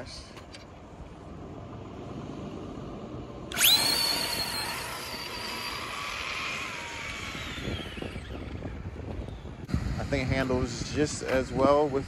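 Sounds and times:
electric toy truck motor whine: 3.5s - 9.7s.

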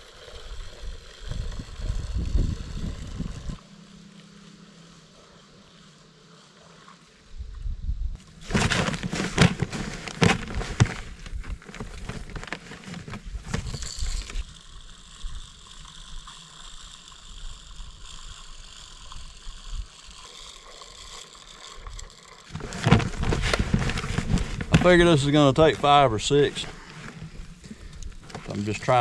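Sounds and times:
seed spreader gears rattling: 8.2s - 29.0s.

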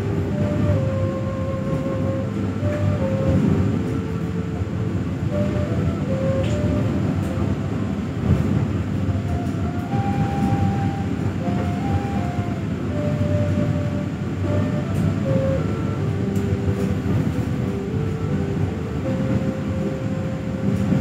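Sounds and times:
train wheels rumbling: 0.0s - 21.0s.

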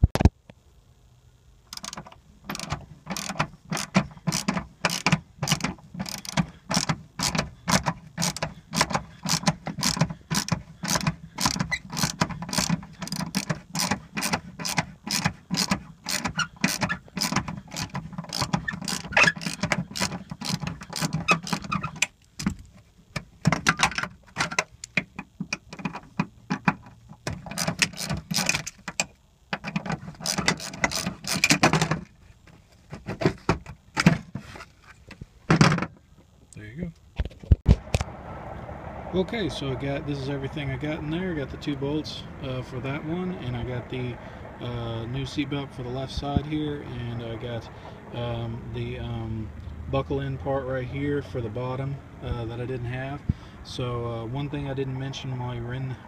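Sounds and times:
ratchet wrench clicking: 1.7s - 22.6s, 27.2s - 32.0s.

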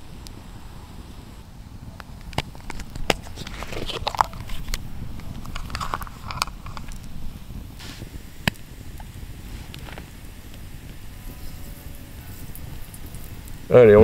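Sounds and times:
steady low rumble: 4.2s - 14.0s.

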